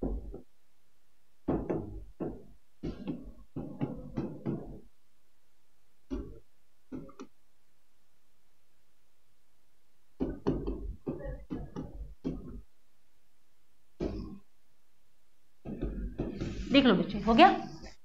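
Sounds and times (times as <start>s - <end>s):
pen tapping on board: 10.2s - 12.6s.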